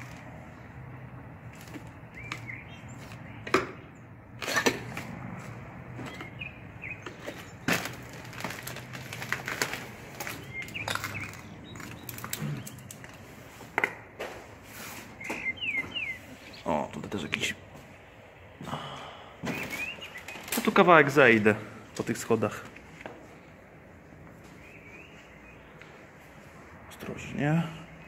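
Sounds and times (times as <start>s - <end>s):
footsteps crunching over broken glass: 7.4s - 13.0s.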